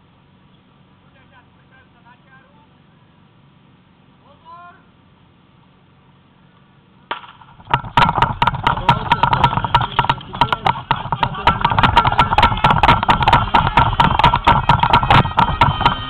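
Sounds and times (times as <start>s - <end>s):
camera knocking and rattling: 7.4s - 16.0s
pump engine running hard: 7.6s - 16.0s.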